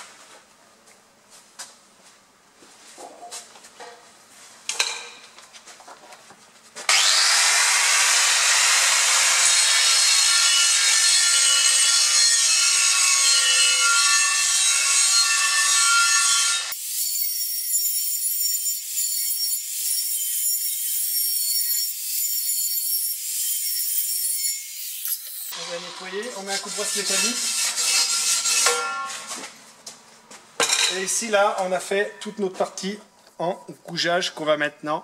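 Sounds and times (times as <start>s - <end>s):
angle grinder grinding steel: 6.9s - 29.2s.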